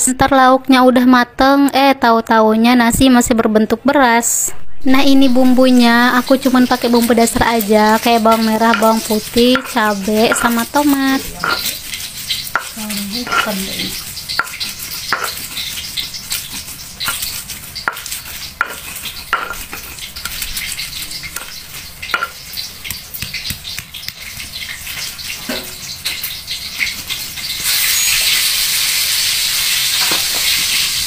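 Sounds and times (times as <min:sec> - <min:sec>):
stone pestle grinding in mortar: 0:07.8 - 0:24.3.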